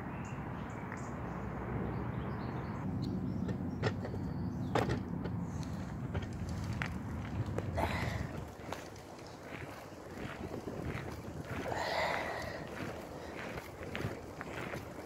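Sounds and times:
wind rumble on microphone: 1.9s - 15.0s.

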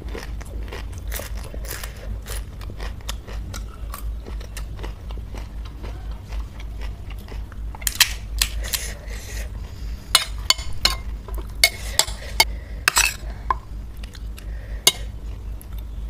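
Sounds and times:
cutlery and dishes clinking: 12.9s - 13.2s.

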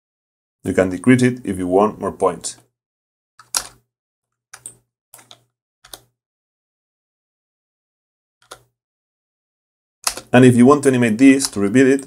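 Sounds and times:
mouse and keyboard clicks: 3.4s - 3.8s, 4.6s - 6.1s, 8.4s - 8.7s, 10.0s - 10.3s.

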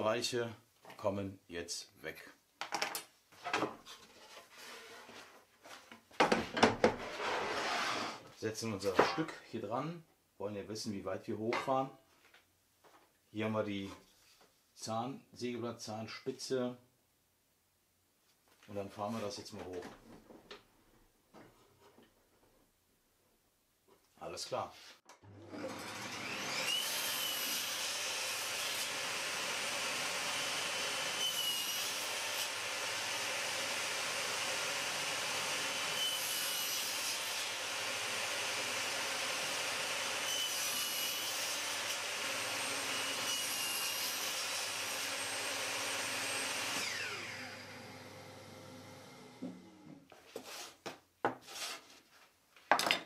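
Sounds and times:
saw cutting plywood: 7.0s - 8.2s, 25.4s - 48.5s
table saw whining: 25.2s - 50.0s
saw blade winding down: 45.7s - 49.3s.

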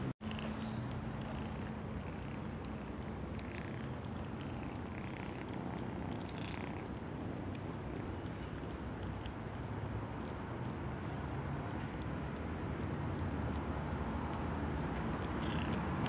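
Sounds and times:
kitten purring: 0.2s - 16.0s.

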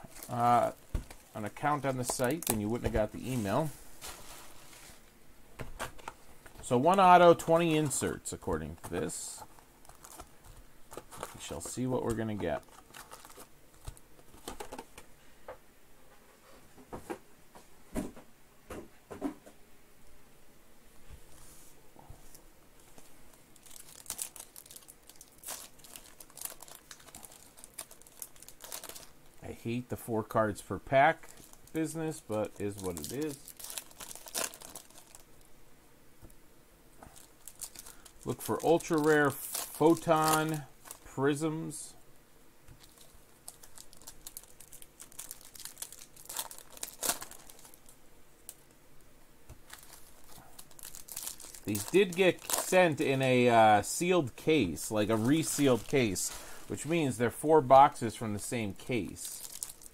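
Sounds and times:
foil pack tearing open: 12.6s - 14.8s, 23.6s - 29.2s, 31.2s - 35.3s, 37.2s - 41.1s, 42.8s - 47.9s, 49.6s - 52.9s, 59.0s - 59.9s.

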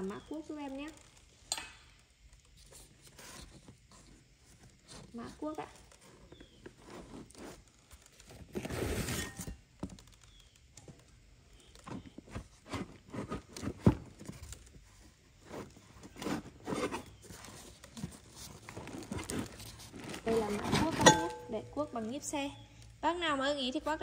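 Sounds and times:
cardboard rustling and scraping: 2.4s - 22.4s
metal tools knocking together: 21.0s - 21.7s.

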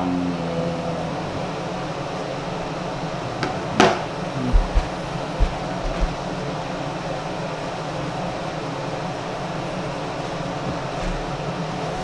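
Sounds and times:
ventilation fan running: 0.0s - 12.0s
soft low thumps: 4.3s - 6.4s.

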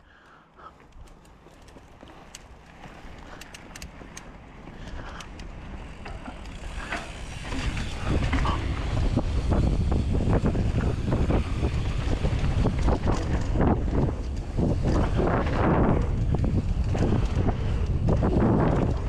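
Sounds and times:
bike clicks and rattles: 0.0s - 19.0s
wind on microphone: 6.9s - 19.0s.

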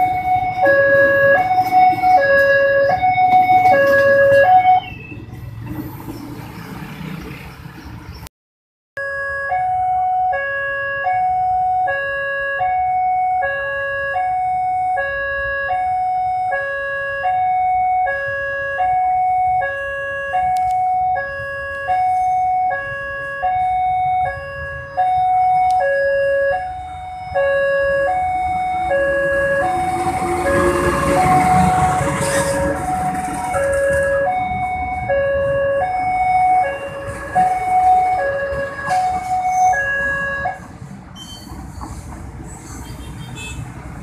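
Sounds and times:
two-tone railway warning alarm: 0.0s - 5.2s, 9.0s - 41.6s
diesel locomotive passing: 0.0s - 8.2s, 26.3s - 43.0s.

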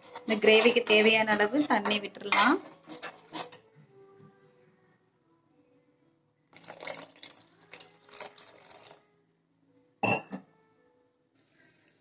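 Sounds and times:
water splashing into gravy: 6.6s - 9.0s.

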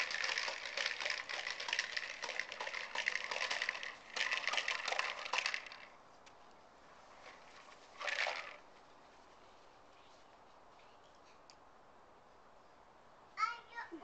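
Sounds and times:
plastic balls popping and rattling: 0.0s - 6.0s, 7.2s - 8.7s.

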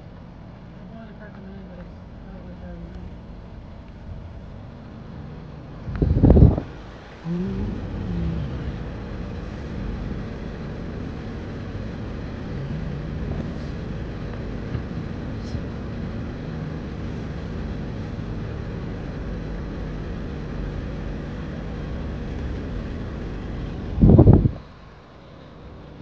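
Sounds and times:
car cabin rumble: 5.7s - 24.6s.

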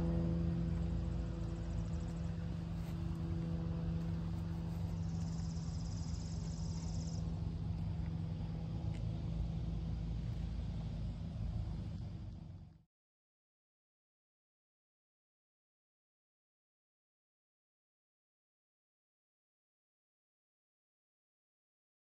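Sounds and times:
motorcycle engine idling: 0.0s - 12.8s.

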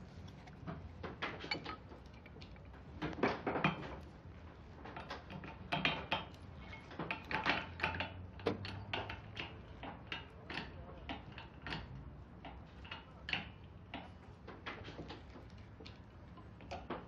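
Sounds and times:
metallic clinks and knocks: 1.3s - 2.7s.

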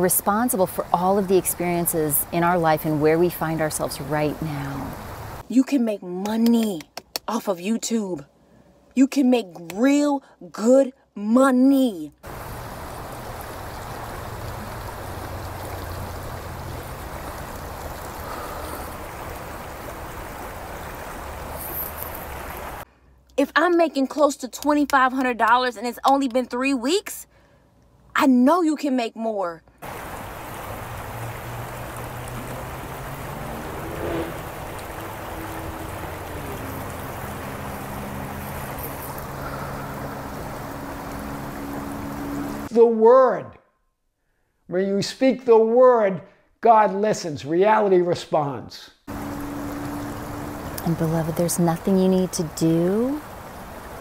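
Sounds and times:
river rushing over rocks: 29.8s - 42.7s.

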